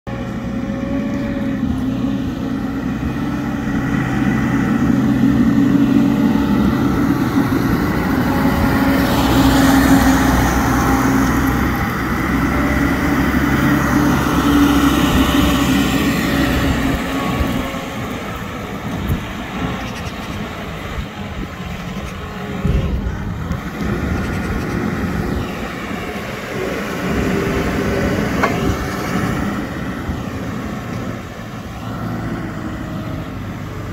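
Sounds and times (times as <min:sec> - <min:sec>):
diesel engine driving past: 0:00.1 - 0:33.9.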